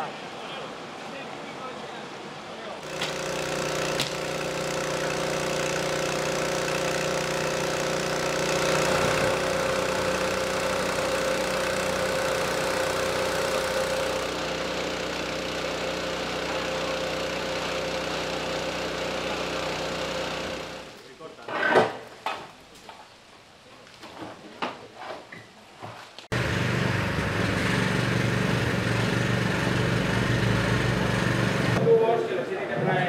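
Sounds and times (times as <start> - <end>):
engine running steadily: 2.8 - 21.0, 26.3 - 31.8.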